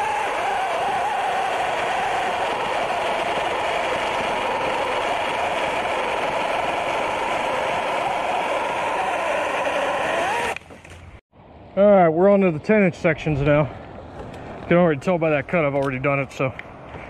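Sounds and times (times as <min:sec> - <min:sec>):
electric chainsaw cutting wood: 0:00.0 - 0:10.7.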